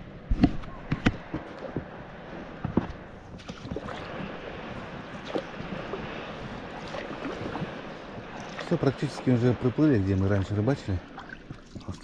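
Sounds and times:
water swishing around oars: 0.0 - 12.0
knocks and splashes: 2.6 - 12.0.

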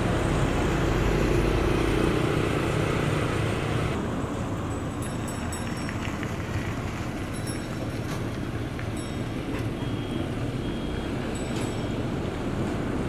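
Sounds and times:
diesel machinery rumble: 0.0 - 13.0
reversing alarm beeps: 8.6 - 12.2.

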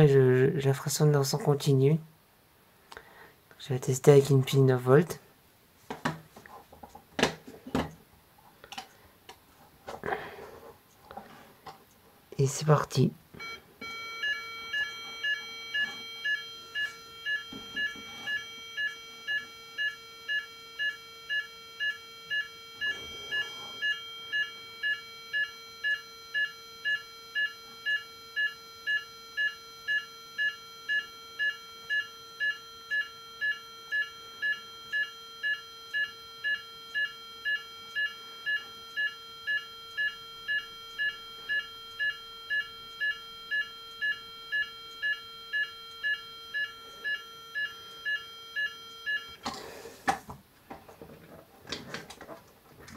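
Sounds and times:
two-tone fire alarm: 13.4 - 49.4.

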